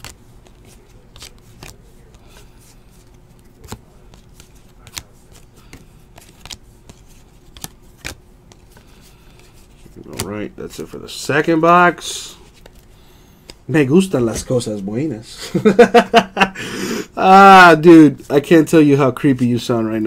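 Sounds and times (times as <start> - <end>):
cards being flipped by hand: 0.0 - 14.9.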